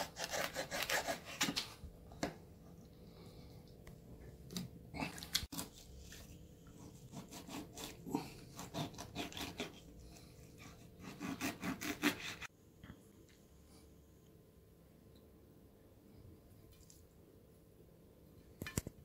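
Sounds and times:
knife sawing and scraping fish: 0:00.0 - 0:01.6, 0:05.5 - 0:12.5.

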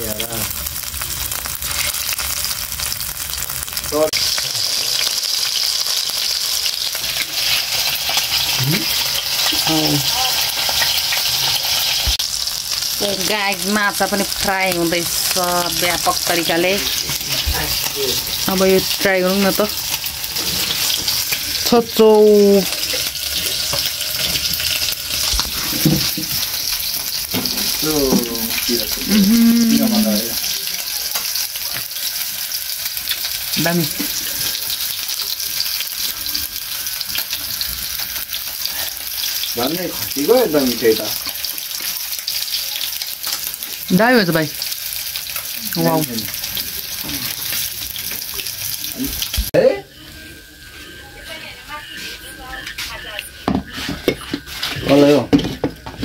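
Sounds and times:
fish sizzling in hot oil: 0:00.0 - 0:56.0
person humming: 0:08.6 - 0:09.0, 0:29.0 - 0:30.2, 0:47.0 - 0:47.4.

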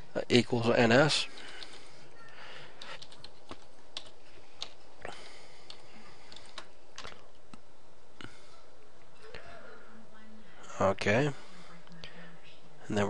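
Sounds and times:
computer keyboard typing: 0:02.8 - 0:04.8, 0:05.6 - 0:07.2.

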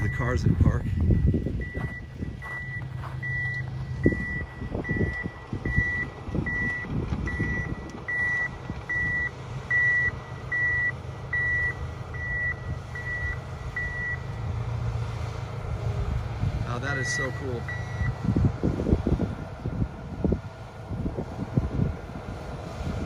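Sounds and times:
electronic warning beeps: 0:00.0 - 0:14.3, 0:16.8 - 0:18.2.

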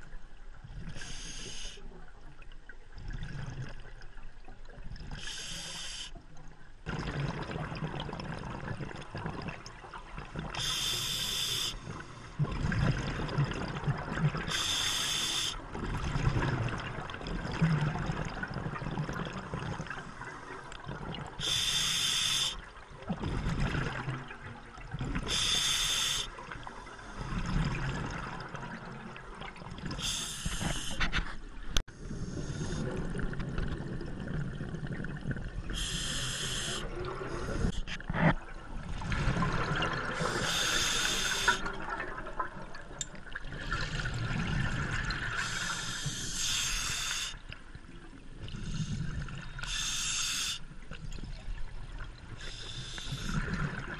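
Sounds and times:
regulator inhale hiss: 0:00.9 - 0:01.9, 0:05.2 - 0:06.2, 0:10.6 - 0:12.4, 0:14.5 - 0:15.6, 0:21.4 - 0:22.7, 0:25.3 - 0:27.4, 0:30.0 - 0:31.1, 0:35.7 - 0:37.9, 0:40.2 - 0:41.7, 0:45.4 - 0:47.5, 0:48.5 - 0:50.7, 0:52.4 - 0:53.6
bubbling exhale: 0:31.9 - 0:38.4, 0:39.0 - 0:42.8, 0:52.3 - 0:53.9.

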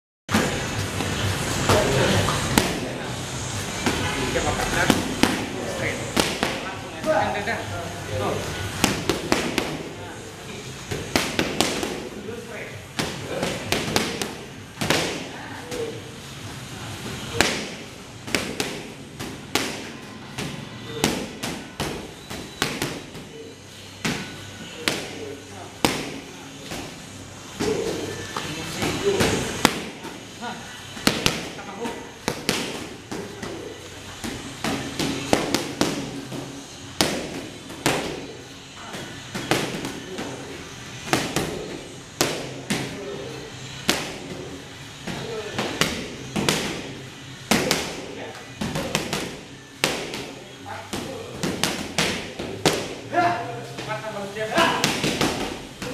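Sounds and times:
boxing gloves punching mitts: 0:04.8 - 0:07.2, 0:08.7 - 0:09.9, 0:10.8 - 0:12.1, 0:13.0 - 0:15.9, 0:17.2 - 0:25.2, 0:27.6 - 0:53.1, 0:54.5 - 0:55.9.

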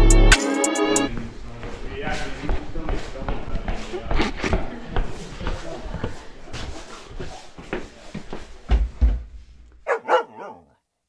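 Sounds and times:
person moving about room: 0:01.1 - 0:10.7
heavy thumps: 0:08.6 - 0:10.6
dog barking: 0:09.9 - 0:10.8.

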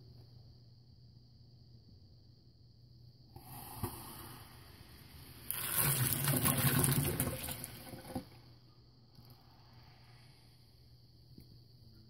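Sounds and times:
hissing fizz: 0:03.4 - 0:08.2
water violently boiling: 0:05.4 - 0:08.2.

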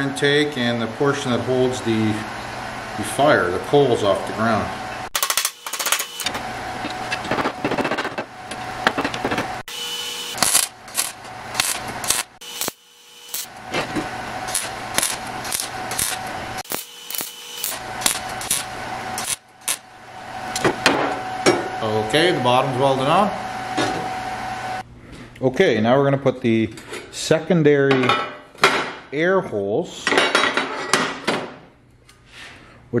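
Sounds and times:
welding arc crackling: 0:09.6 - 0:20.6.

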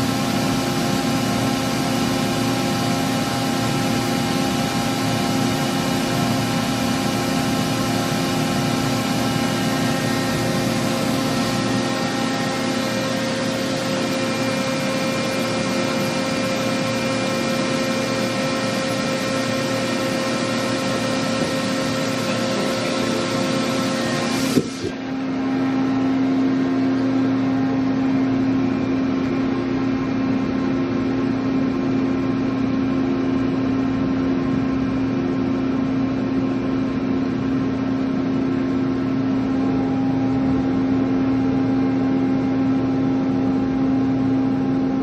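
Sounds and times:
machine hum and whir: 0:00.0 - 0:45.0.

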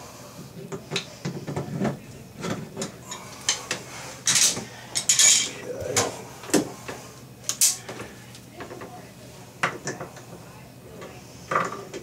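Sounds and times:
metal parts clinking in a sink: 0:04.3 - 0:05.6.

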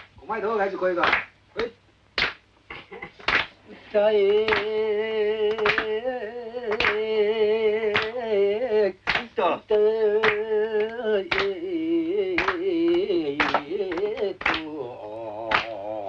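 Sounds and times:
hand claps: 0:01.0 - 0:03.6, 0:04.2 - 0:04.8, 0:05.4 - 0:07.1, 0:07.8 - 0:08.2, 0:09.0 - 0:09.4, 0:10.2 - 0:14.8, 0:15.4 - 0:15.8.

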